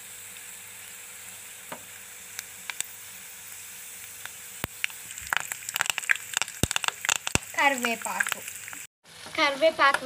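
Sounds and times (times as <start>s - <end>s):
hot oil sizzling: 0.0s - 10.0s
oil popping: 4.2s - 8.9s.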